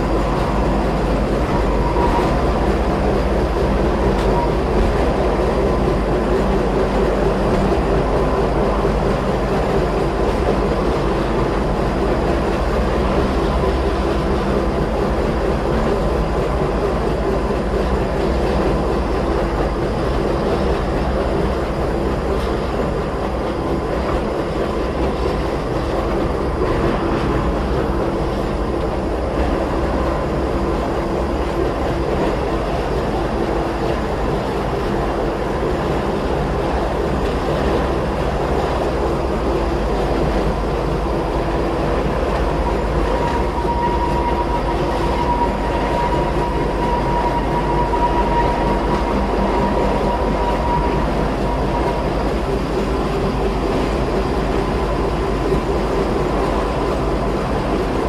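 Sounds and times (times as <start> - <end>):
train running hum and whine: 0.0 - 58.0.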